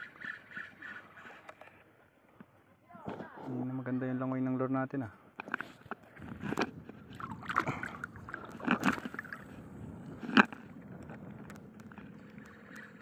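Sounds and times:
seawater sloshing and lapping: 0:00.0 - 0:01.8, 0:05.4 - 0:13.0
water splashes: 0:06.1 - 0:13.0.

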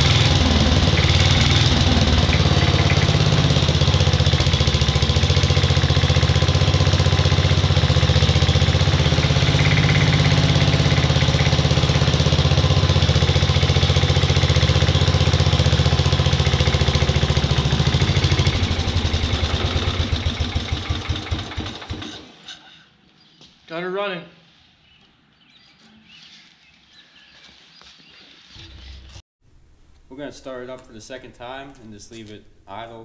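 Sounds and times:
small engine running: 0:00.0 - 0:22.4.

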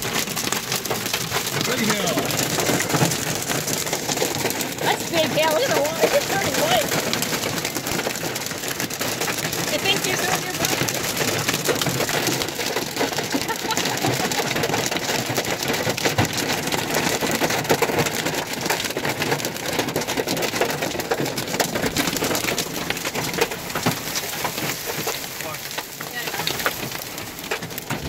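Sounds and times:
hail clattering: 0:00.0 - 0:28.0
rain hissing: 0:00.0 - 0:28.0.

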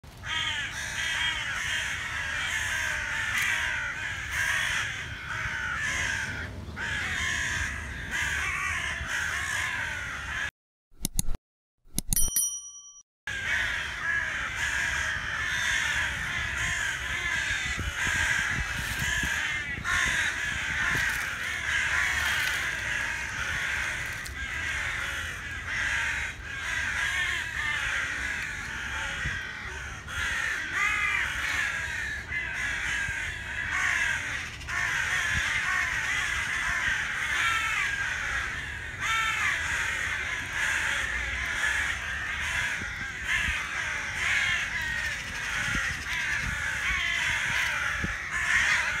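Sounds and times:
crows cawing: 0:00.2 - 0:10.5, 0:13.3 - 0:49.0
chatter of bird calls: 0:13.3 - 0:49.0.

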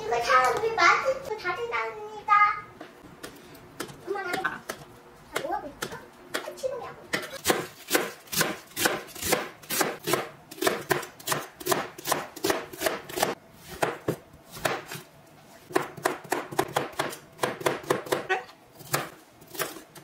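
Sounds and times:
knife chopping on cutting board: 0:07.1 - 0:15.1, 0:15.7 - 0:20.0.

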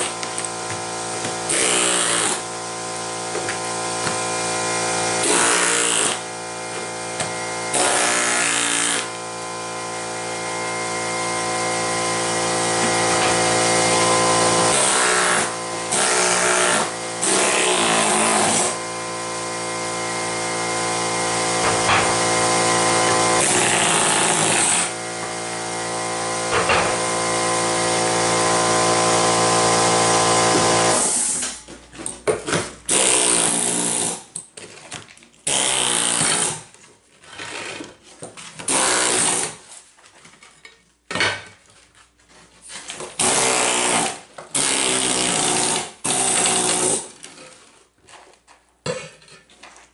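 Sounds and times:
air hammer chiselling tile: 0:00.0 - 0:09.2, 0:11.5 - 0:31.6, 0:32.9 - 0:34.4, 0:35.4 - 0:36.7, 0:38.7 - 0:39.6, 0:43.2 - 0:47.2
air compressor running: 0:00.0 - 0:31.6, 0:32.9 - 0:34.2, 0:43.2 - 0:47.1.

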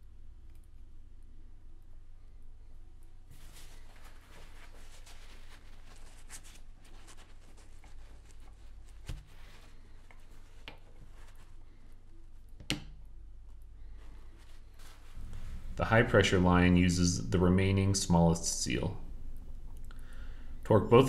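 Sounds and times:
steady low hum: 0:00.0 - 0:21.0
paper towel rustling: 0:03.3 - 0:12.4, 0:13.8 - 0:17.4.

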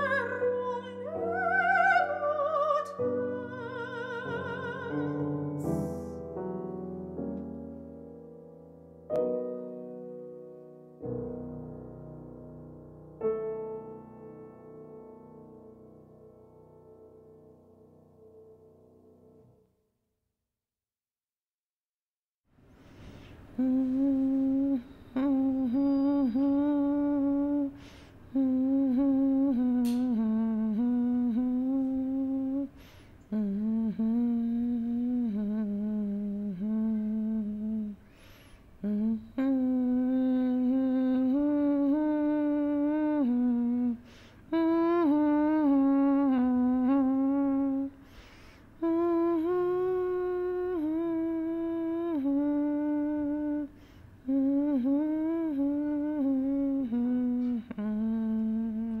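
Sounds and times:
person humming: 0:00.0 - 0:06.4, 0:23.6 - 0:38.1, 0:38.8 - 0:48.0, 0:48.8 - 0:59.0.

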